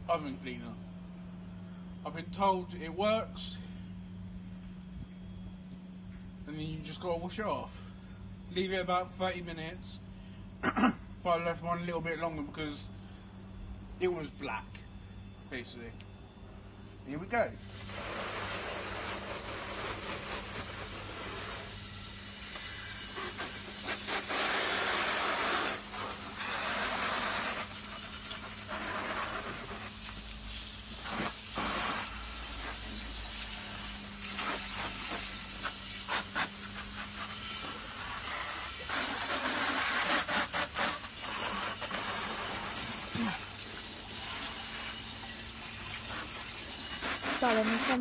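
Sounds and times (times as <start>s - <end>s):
hose nozzle spraying water: 17.6s - 48.0s.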